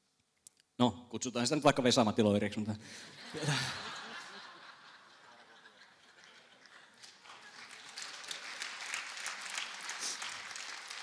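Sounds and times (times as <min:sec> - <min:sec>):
audience clapping: 0:05.2 - 0:11.0.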